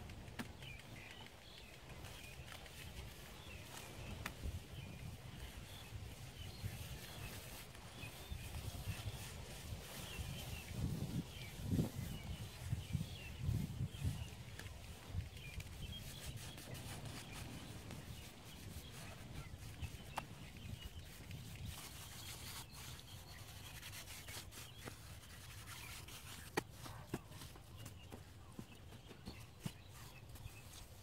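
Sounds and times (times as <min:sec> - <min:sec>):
rubbing and scraping: 0:15.5 - 0:28.2.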